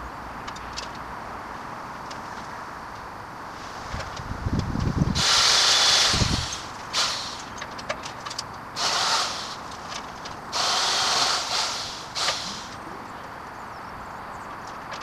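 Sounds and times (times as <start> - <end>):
electric pole saw cutting branches: 5.2 - 7.6, 8.8 - 12.8.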